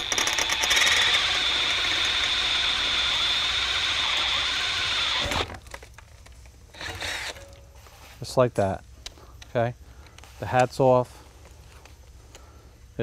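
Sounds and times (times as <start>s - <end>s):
cordless drill boring into metal: 0.0s - 5.6s.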